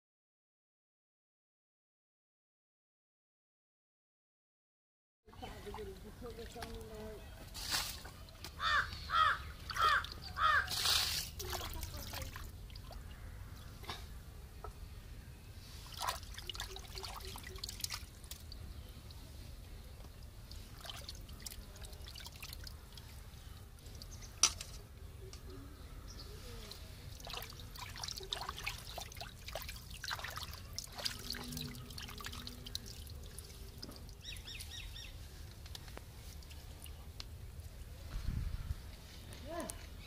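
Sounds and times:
muddy water splashing: 5.3s - 14.1s, 15.7s - 24.4s, 26.6s - 37.3s.

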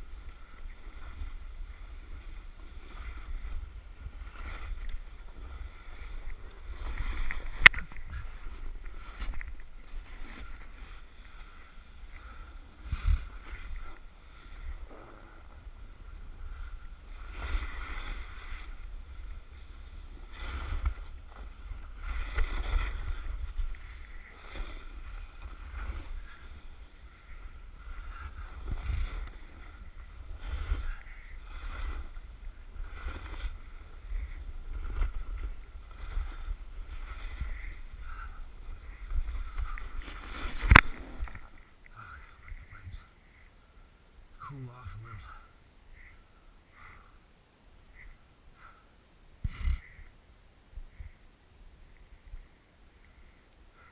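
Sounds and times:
snowboard edge scraping snow: 0.0s - 41.6s
wind rumble on microphone: 0.0s - 43.1s.

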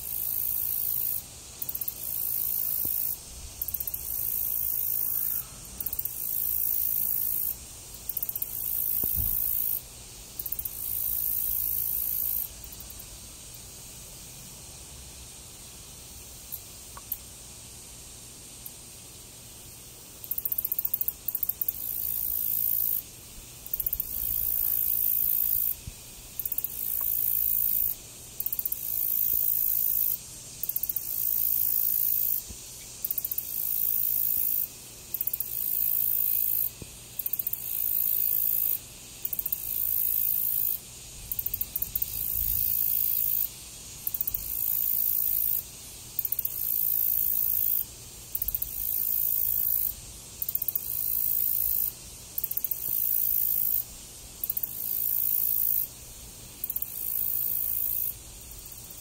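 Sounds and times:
high-pitched insect buzzing: 0.0s - 13.2s, 20.2s - 56.0s, 56.6s - 59.0s.

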